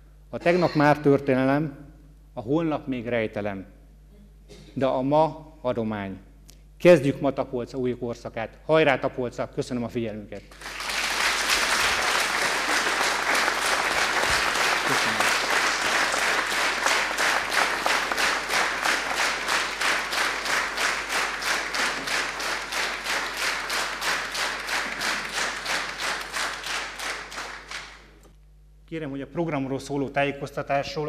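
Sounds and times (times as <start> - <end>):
audience applauding: 10.5 - 28.1.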